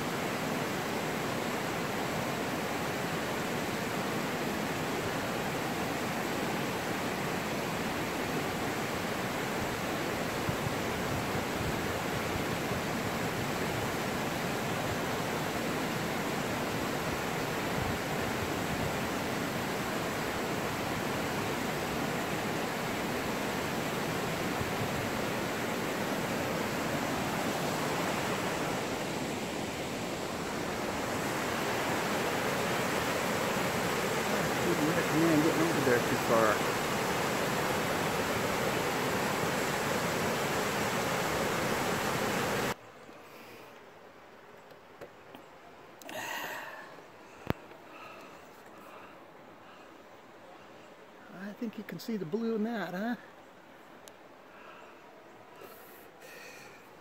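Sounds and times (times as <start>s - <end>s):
mountain stream rushing over rocks: 0.0s - 42.8s.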